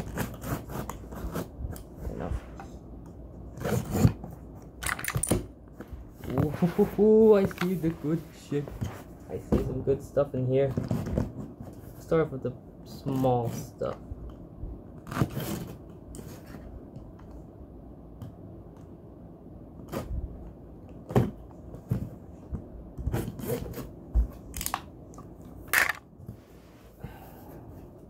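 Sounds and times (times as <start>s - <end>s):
cardboard flaps scraping: 6.1s - 9.2s.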